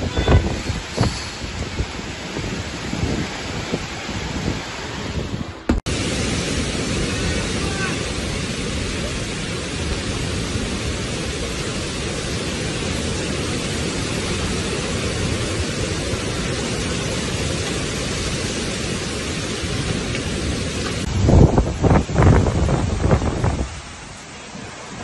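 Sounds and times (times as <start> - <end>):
heavy rain: 0.0 - 25.0
storm wind: 0.0 - 25.0
wind buffeting microphone: 0.0 - 25.0.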